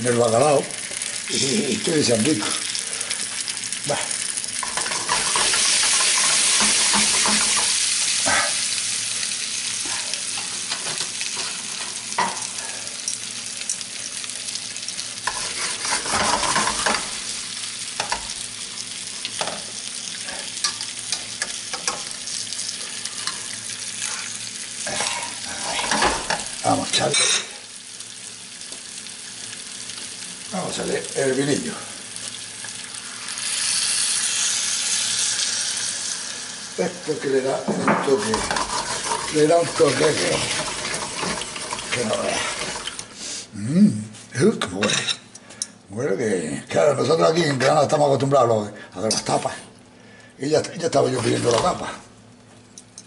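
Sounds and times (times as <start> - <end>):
fish sizzling in a frying pan: 0.0 - 43.5, 49.0 - 53.0
metal spatula scraping a pan: 15.2 - 17.1, 38.1 - 41.8.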